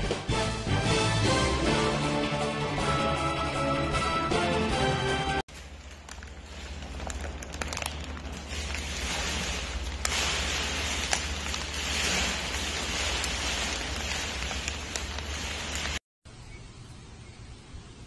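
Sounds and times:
snack bag crinkling and rustling: 5.5 - 16.1.

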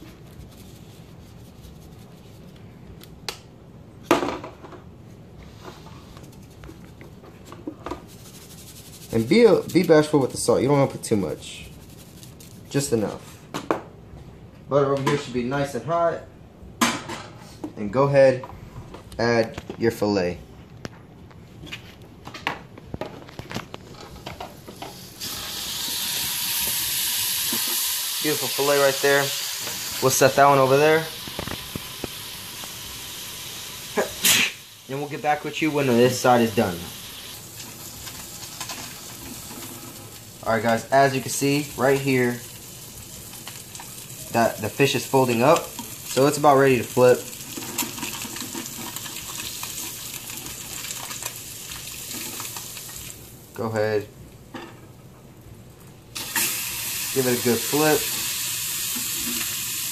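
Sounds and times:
steady low hiss: 0.0 - 25.5, 27.5 - 59.9
fish sizzling in a frying pan: 25.0 - 53.3, 56.2 - 59.9.

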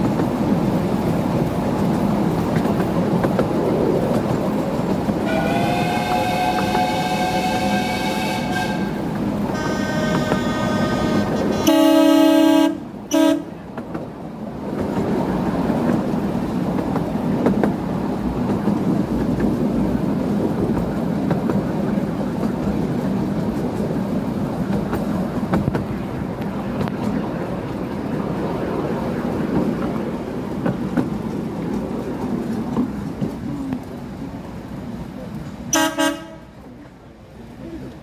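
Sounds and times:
train rumbling along track: 0.0 - 38.0
train whistle toots: 5.2 - 13.5, 35.7 - 36.5.

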